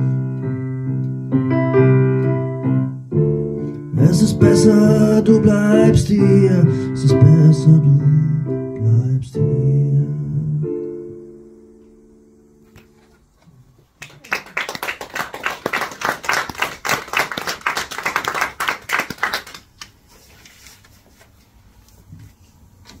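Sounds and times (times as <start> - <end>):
electronic keyboard chord: 0.0 - 13.2
audience applauding: 14.0 - 20.0.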